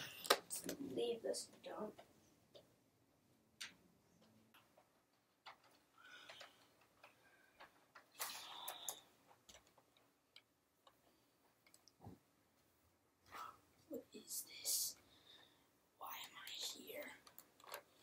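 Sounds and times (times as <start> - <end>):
faint ticks and taps: 1.5 - 2.8, 8.8 - 12.7.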